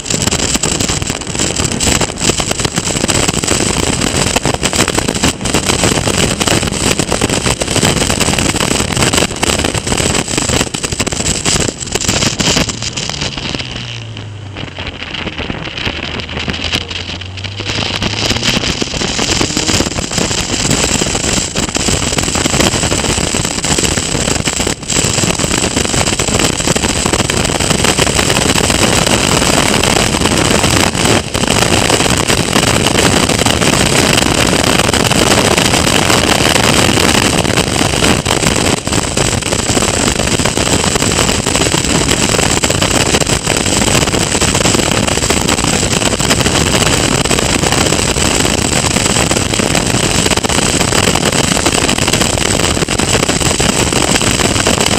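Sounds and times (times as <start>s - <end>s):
race car engine running hard: 0.0s - 39.4s
heavy wind rush: 0.0s - 54.9s.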